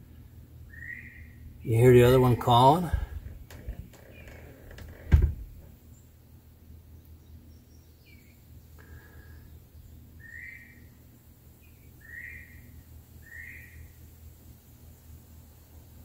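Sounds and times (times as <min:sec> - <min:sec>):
quail whistled calls: 0:00.7 - 0:01.3, 0:10.2 - 0:10.9, 0:12.0 - 0:12.6, 0:13.2 - 0:13.8.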